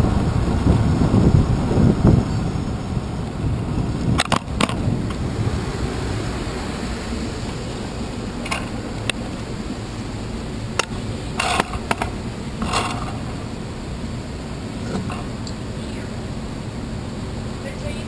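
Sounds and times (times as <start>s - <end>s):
bicycle rolling on sidewalk: 0.0s - 18.0s
sharp clicks and rattles: 4.1s - 5.2s, 8.4s - 9.4s, 10.7s - 13.4s.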